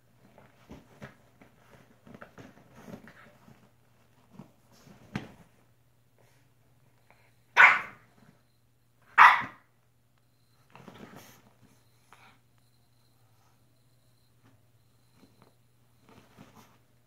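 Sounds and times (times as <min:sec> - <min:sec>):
dog barking: 0:07.6 - 0:08.0, 0:09.2 - 0:09.6.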